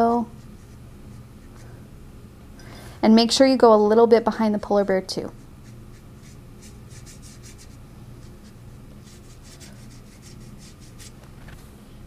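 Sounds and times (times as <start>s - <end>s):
steady low hum: 0.0s - 12.0s
brush swishing on paper: 0.3s - 1.6s, 5.3s - 11.2s.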